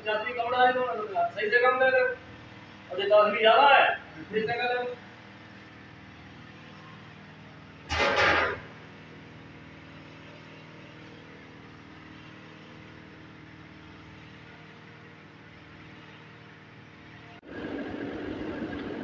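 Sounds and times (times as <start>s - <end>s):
loud burst of noise: 7.9s - 8.8s
low hum: 17.4s - 19.0s.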